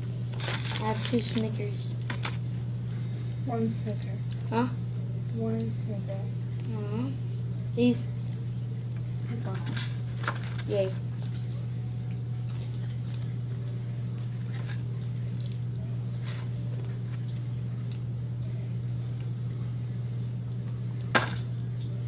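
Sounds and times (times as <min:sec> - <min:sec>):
steady low hum: 0:00.0 - 0:22.0
chewing and wet mouth sounds: 0:11.1 - 0:16.0.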